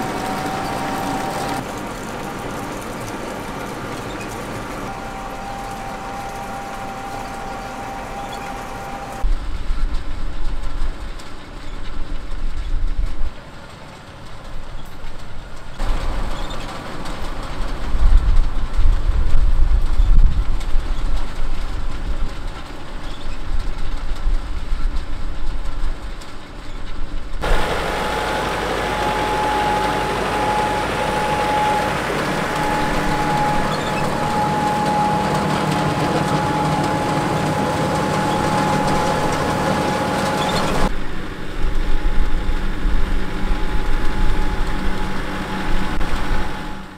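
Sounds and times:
high whine: 0.0s - 9.4s, 27.4s - 46.9s
tractor engine running: 0.0s - 9.8s, 13.4s - 20.6s, 27.4s - 46.9s
harvester rumble and clatter: 0.0s - 46.9s.

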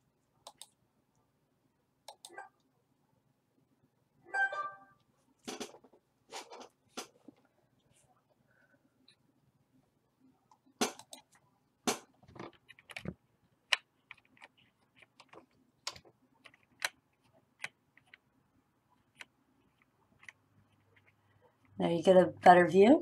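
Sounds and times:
computer mouse clicks and taps: 0.4s - 0.8s, 2.1s - 2.5s, 10.5s - 18.2s, 19.0s - 21.7s.

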